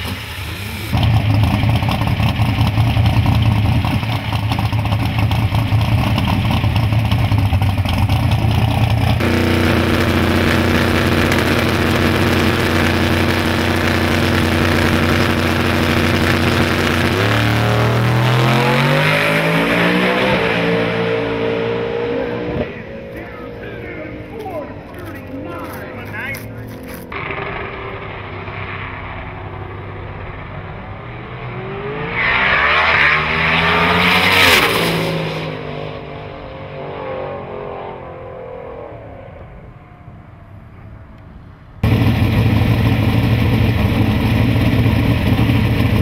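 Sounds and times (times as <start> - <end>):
drag racing car engine: 0.0 - 46.0
car accelerating hard: 7.8 - 40.0.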